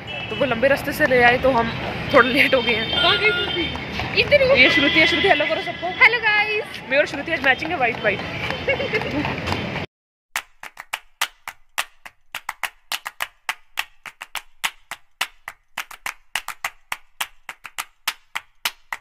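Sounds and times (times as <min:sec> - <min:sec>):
handclap-like beat music: 0:10.4 - 0:19.0.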